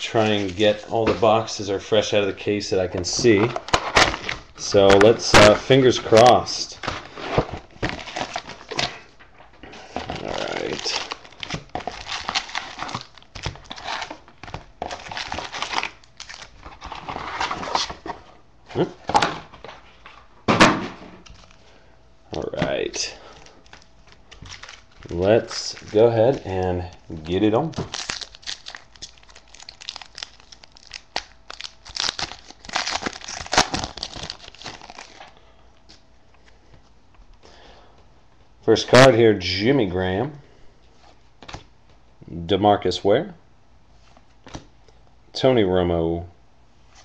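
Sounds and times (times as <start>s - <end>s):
foil packs crinkling and rustling: 0.0s - 1.5s, 2.9s - 18.2s, 22.4s - 35.4s.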